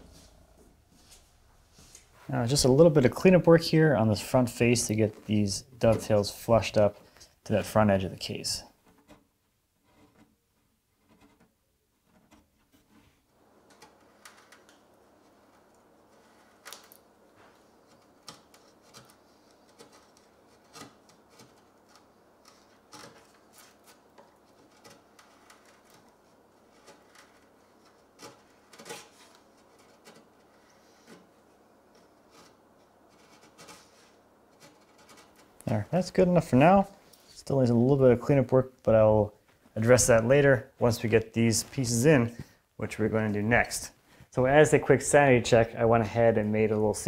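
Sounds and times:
hand chisel shaving wood: 0:13.6 - 0:35.6.

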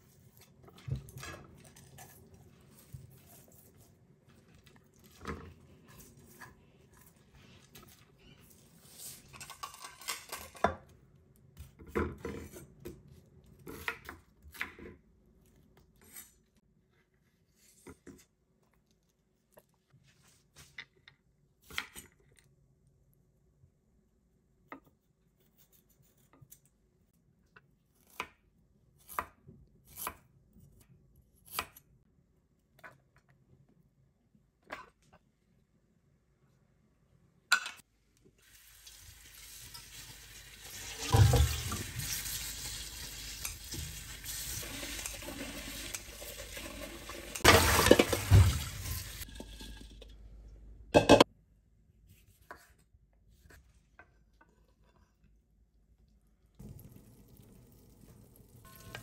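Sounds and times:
plate knocking on board: 0:51.0 - 0:51.2.

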